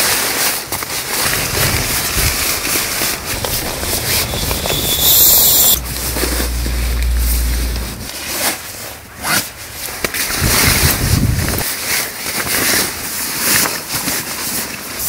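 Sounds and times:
nylon fabric rustling: 0:00.2 - 0:05.1
low rumble: 0:00.6 - 0:08.2.

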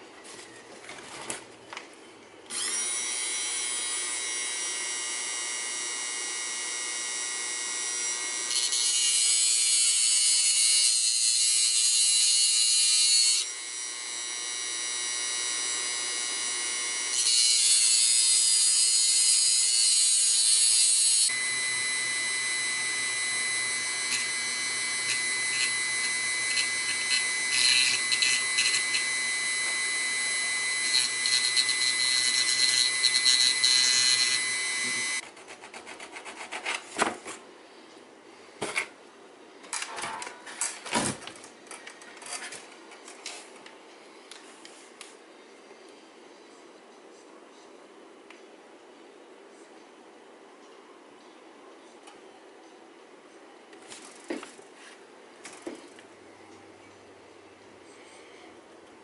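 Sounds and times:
rotary tool grinding metal rod: 0:07.8 - 0:35.2.

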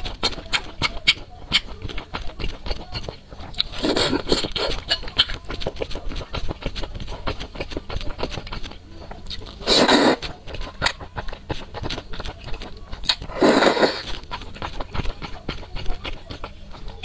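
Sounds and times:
wet chewing and mouth clicks: 0:00.0 - 0:17.0
loud noodle slurps: 0:03.4 - 0:07.6, 0:09.3 - 0:12.2, 0:13.0 - 0:15.7.

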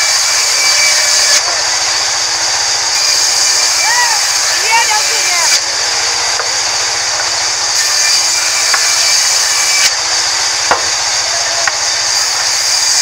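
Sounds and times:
band saw cutting wood: 0:00.0 - 0:13.0
wood knocking against table: 0:10.7 - 0:10.9.

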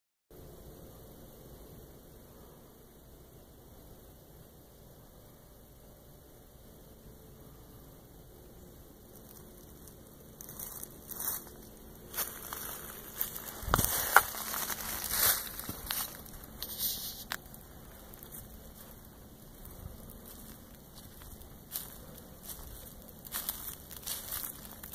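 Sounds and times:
footsteps crunching through dry leaves: 0:09.1 - 0:24.9
twigs snapping: 0:09.2 - 0:18.5.

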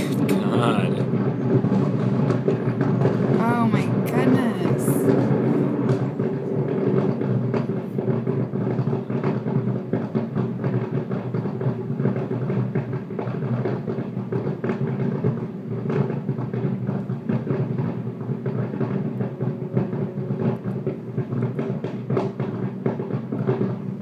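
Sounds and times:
distant fireworks booming and crackling: 0:00.0 - 0:24.0.

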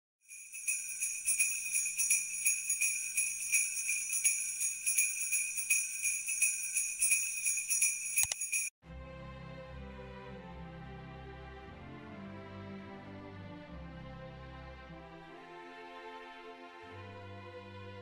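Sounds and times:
jingle bells shaken: 0:00.3 - 0:08.7.

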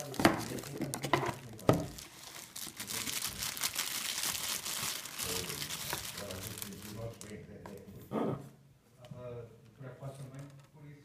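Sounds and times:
plastic bag crinkling: 0:00.0 - 0:07.6.

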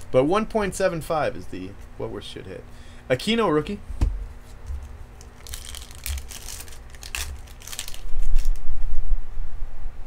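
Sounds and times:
dull bump: 0:03.9 - 0:04.4
foil wrapper crinkling and tearing: 0:04.5 - 0:08.6.

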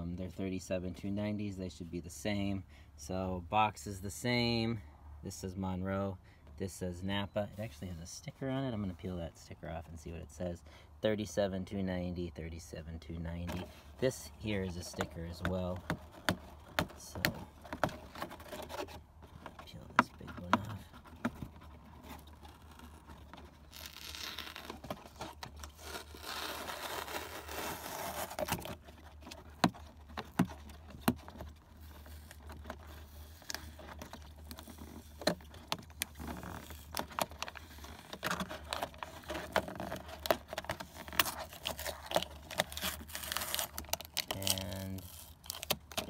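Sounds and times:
paper sticker tearing: 0:23.6 - 0:25.0, 0:25.6 - 0:28.7, 0:41.0 - 0:46.0.

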